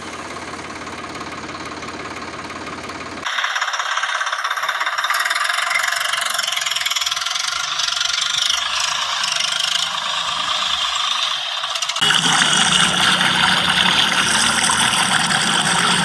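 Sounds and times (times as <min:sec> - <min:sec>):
tractor engine knocking: 0:00.0 - 0:10.8.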